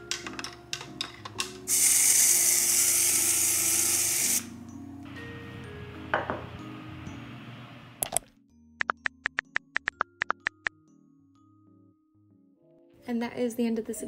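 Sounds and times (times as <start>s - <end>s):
soft background music: 0.0s - 14.0s
aerosol can spraying hiss: 1.7s - 4.5s.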